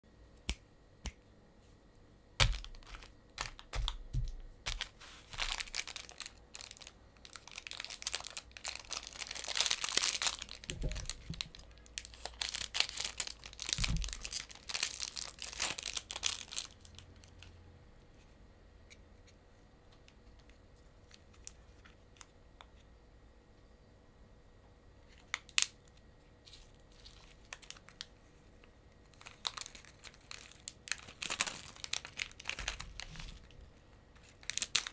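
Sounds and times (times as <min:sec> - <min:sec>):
plastic wrappers crinkling: 0:02.4 - 0:17.5, 0:25.1 - 0:28.2, 0:29.0 - 0:34.9.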